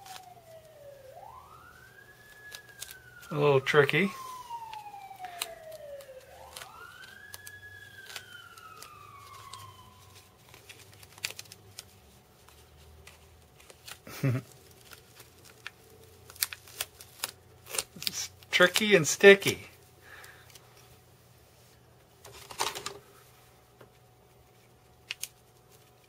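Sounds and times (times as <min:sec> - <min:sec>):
emergency vehicle siren wailing: 0:00.0 - 0:11.1
adhesive tape crackling: 0:00.0 - 0:20.8, 0:24.6 - 0:26.0.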